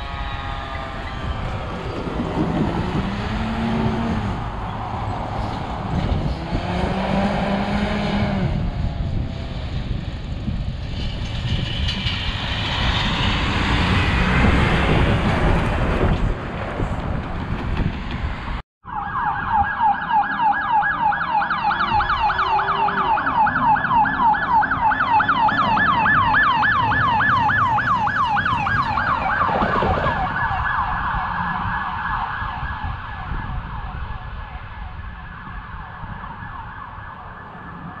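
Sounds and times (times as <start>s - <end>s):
siren yelping: 0.0s - 3.2s, 18.8s - 38.0s
road traffic noise: 0.0s - 38.0s.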